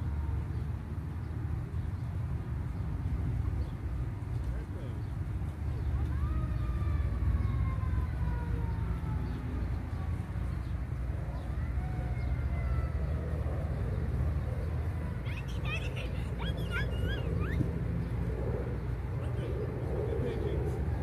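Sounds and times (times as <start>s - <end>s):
low outdoor rumble: 0.0s - 21.0s
distant siren wailing: 5.9s - 10.2s, 11.0s - 21.0s.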